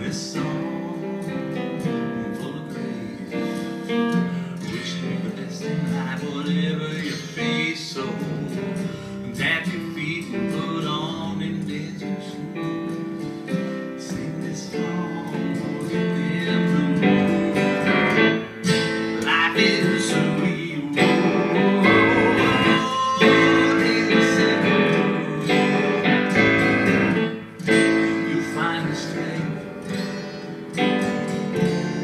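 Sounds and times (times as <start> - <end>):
electronic keyboard playing chords: 14.8 - 32.0.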